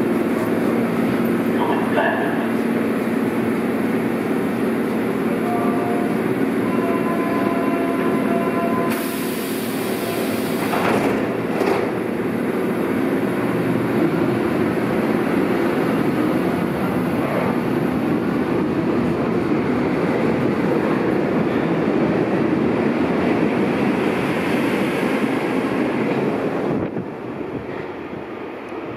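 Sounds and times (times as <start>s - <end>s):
train rumbling on rails: 0.0s - 28.9s
door warning tone: 5.4s - 9.2s
air hiss: 8.9s - 10.8s.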